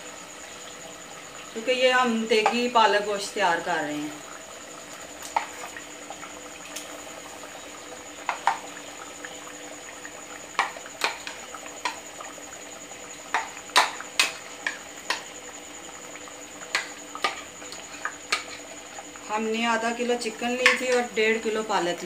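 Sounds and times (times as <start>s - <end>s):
thick sauce bubbling: 0.4s - 21.2s
spatula stirring in a pot: 5.2s - 6.3s, 13.2s - 15.6s, 16.3s - 19.3s.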